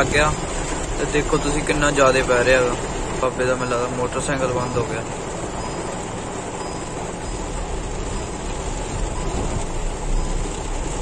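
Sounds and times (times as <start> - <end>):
car rumble moving slowly: 0.0 - 11.0
heavy rain on car roof: 0.0 - 11.0.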